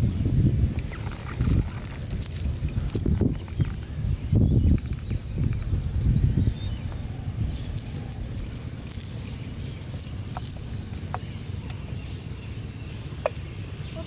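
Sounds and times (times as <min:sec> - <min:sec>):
small birds chirping: 0:00.0 - 0:14.0
sharp high ticks: 0:00.8 - 0:03.6, 0:07.6 - 0:11.8.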